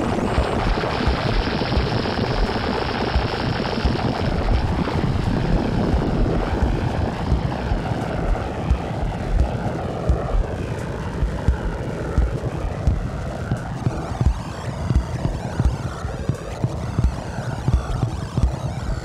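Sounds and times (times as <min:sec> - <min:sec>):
droning drum machine wash: 0:00.0 - 0:19.0
low thumps: 0:05.5 - 0:10.6, 0:11.2 - 0:19.0.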